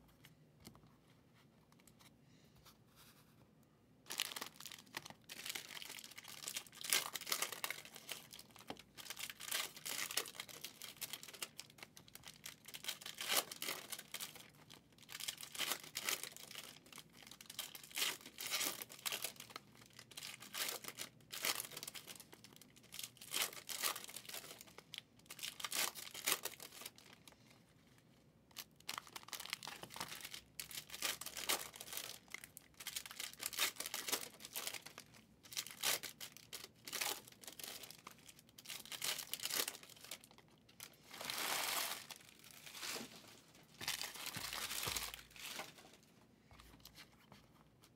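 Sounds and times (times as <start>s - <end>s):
foil wrappers crinkling and tearing: 4.1s - 27.2s, 28.6s - 43.2s, 43.8s - 45.9s
cards rustling: 40.9s - 46.0s.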